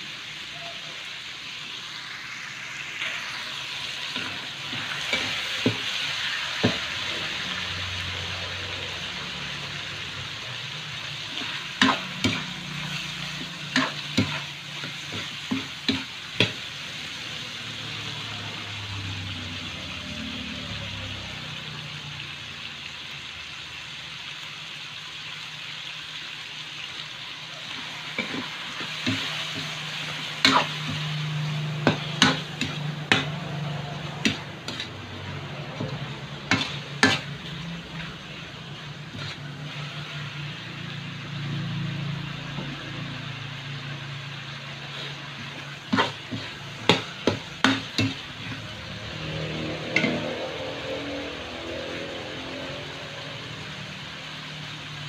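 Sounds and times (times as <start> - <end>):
chicken sizzling in a wok: 0.0 - 55.0
metal spatula scraping a pan: 11.0 - 16.6, 27.6 - 43.0, 44.6 - 52.0.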